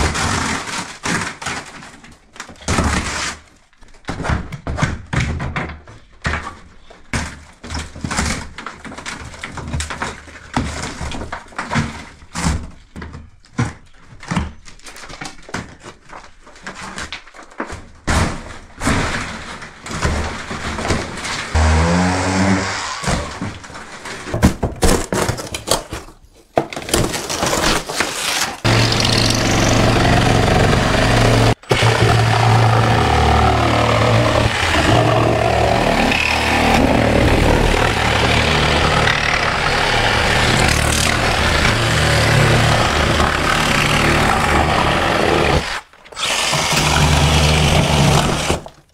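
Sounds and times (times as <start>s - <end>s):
boards cracking and splintering: 0.0s - 22.1s, 23.0s - 48.9s
loud motor-like drone: 21.6s - 23.1s, 28.7s - 45.6s.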